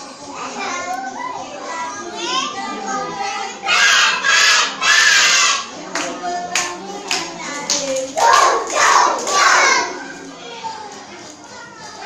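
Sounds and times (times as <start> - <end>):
children calling out in unison: 3.6 - 5.8
sharp hand claps: 6.0 - 9.6.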